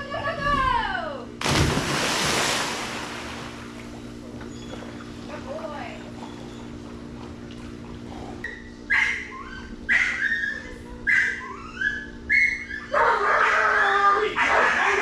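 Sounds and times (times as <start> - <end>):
dog yelping: 8.5 - 15.0.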